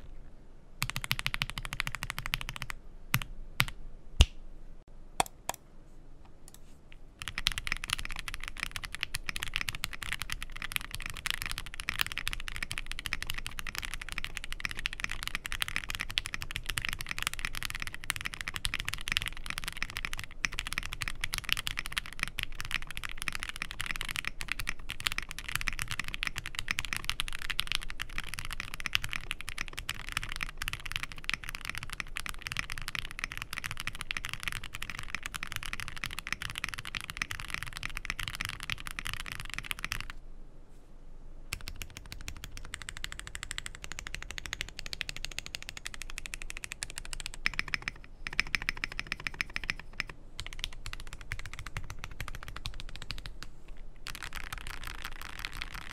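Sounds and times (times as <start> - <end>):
mechanical keyboard typing: 0.8 - 3.8, 7.2 - 40.2, 41.5 - 53.4, 54.0 - 55.9.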